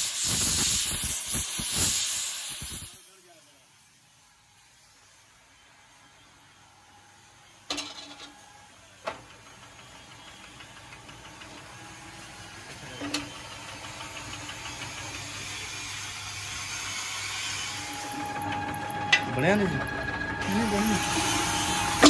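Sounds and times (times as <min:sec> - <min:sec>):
machine motor and chain humming: 0:07.7 - 0:22.0.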